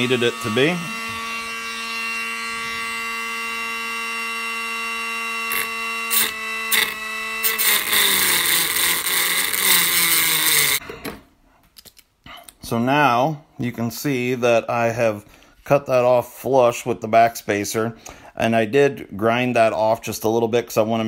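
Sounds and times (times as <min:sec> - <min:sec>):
wheel grinding through metal: 0:00.0 - 0:04.7, 0:05.4 - 0:10.8
rotary tool whining: 0:00.0 - 0:10.8.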